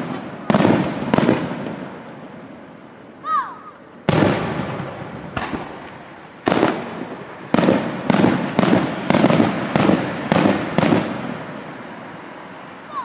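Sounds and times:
firework shells bursting: 3.7s - 11.6s.

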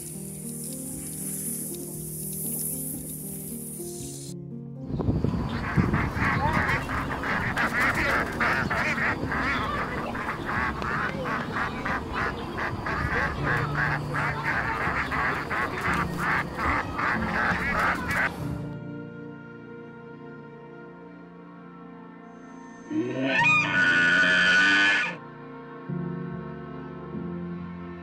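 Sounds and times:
ducks quacking: 5.4s - 18.4s, 22.9s - 25.2s.

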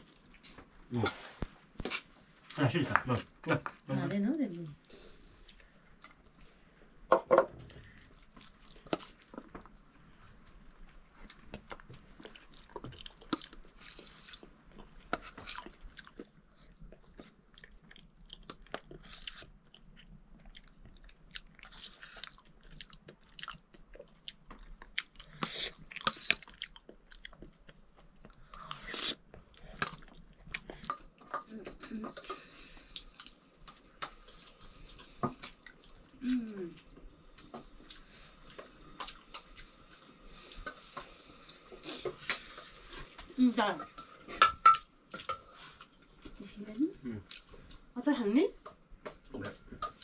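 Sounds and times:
chewing: 7.7s - 44.3s.

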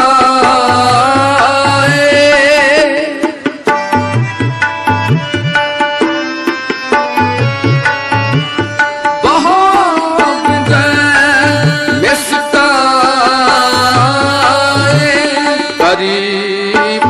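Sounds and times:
person singing: 0.0s - 3.9s, 9.2s - 17.0s
harmonium: 0.0s - 17.0s
tabla drumming: 0.0s - 17.0s.

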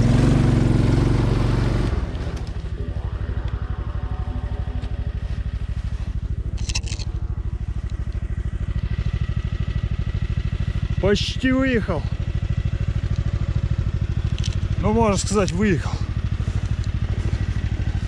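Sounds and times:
snowmobile engine running: 0.0s - 18.0s
snow crunching: 1.9s - 8.2s, 15.1s - 18.0s.

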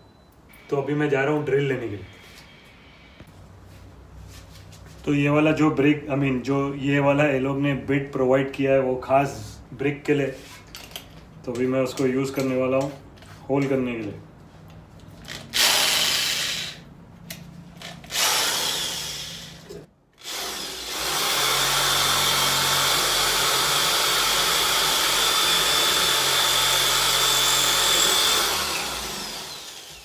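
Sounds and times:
electric drill boring into brick: 15.5s - 16.8s, 18.1s - 30.0s.

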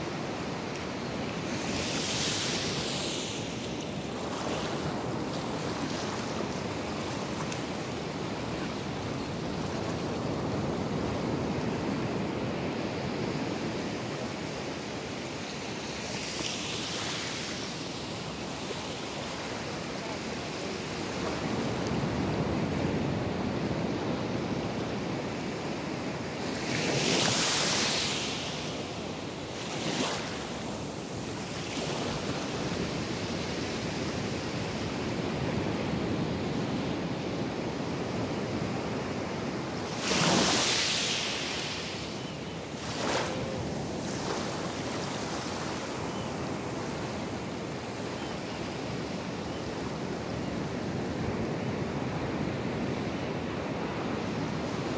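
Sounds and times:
waves crashing: 39.7s - 47.9s
ocean surf breaking: 42.7s - 45.7s.

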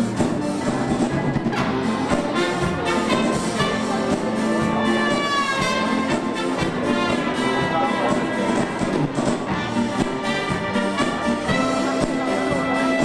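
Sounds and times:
brass melody in held notes: 0.0s - 13.0s
dance band playing: 0.0s - 13.0s.

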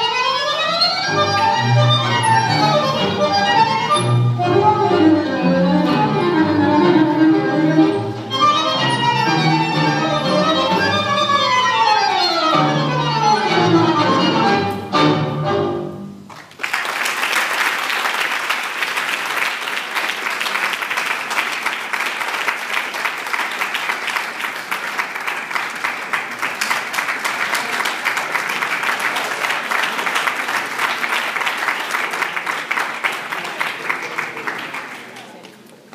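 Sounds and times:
audience applauding: 16.3s - 35.9s.

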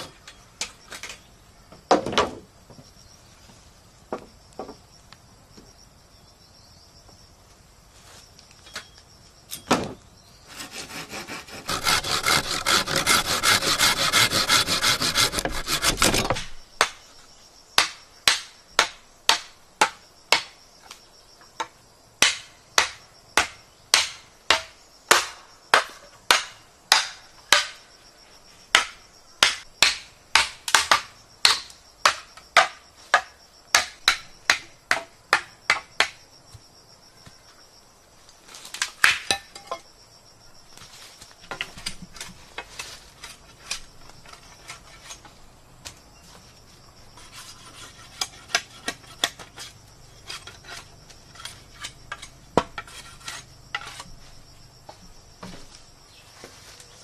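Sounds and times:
bamboo poles clattering: 0.0s - 1.2s, 1.8s - 2.5s, 10.8s - 17.0s, 38.5s - 39.9s, 40.8s - 46.5s, 47.2s - 54.2s
bamboo poles knocking and rustling: 0.0s - 2.9s, 4.1s - 4.8s, 8.4s - 10.1s, 11.5s - 17.1s, 17.8s - 27.9s, 28.7s - 37.4s, 38.4s - 39.9s, 40.7s - 57.0s
hand saw rasping through bamboo: 10.5s - 16.4s, 47.2s - 52.2s, 52.8s - 54.1s.

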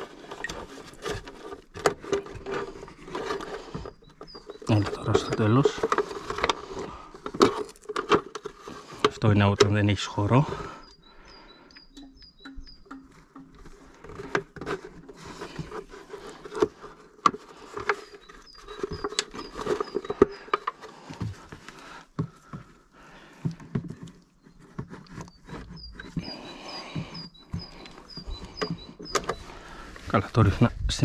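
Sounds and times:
small bird chirping: 3.8s - 5.7s, 10.2s - 13.5s, 17.9s - 20.7s, 24.4s - 29.9s.

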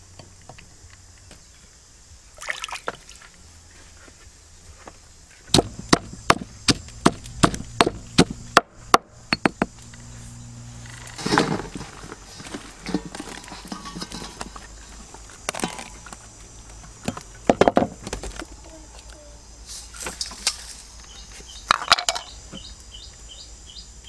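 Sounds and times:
pestle pounding in stone mortar: 5.5s - 9.8s
rustling clatter: 10.8s - 16.2s.

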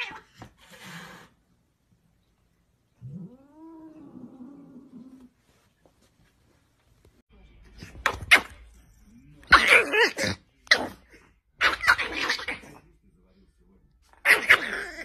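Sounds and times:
small dog snarling and barking: 14.2s - 15.0s.

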